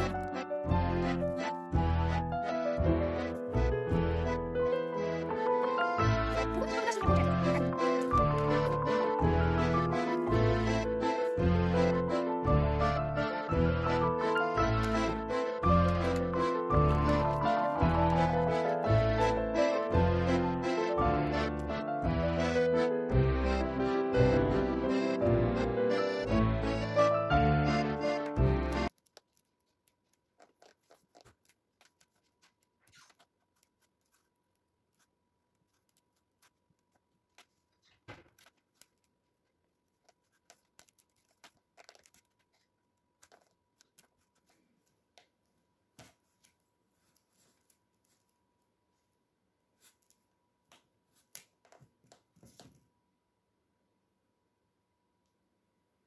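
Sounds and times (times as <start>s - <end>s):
background music: 0.0s - 28.9s
hands kneading plasticine: 28.3s - 48.4s.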